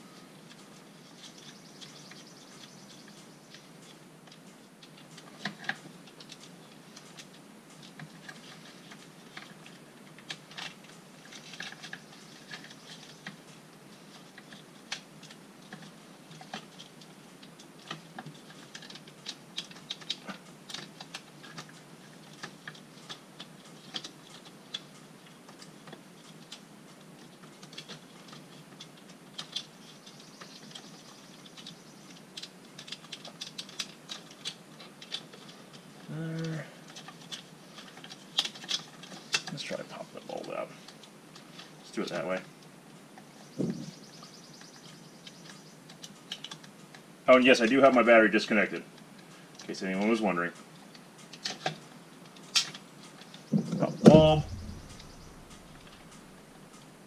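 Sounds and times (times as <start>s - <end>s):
short hum: 53.8s - 56.3s.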